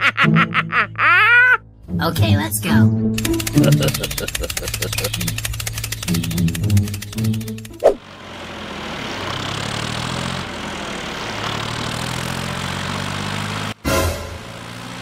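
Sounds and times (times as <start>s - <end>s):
tractor engine idling: 3.2s - 15.0s
short swish: 7.7s - 8.0s.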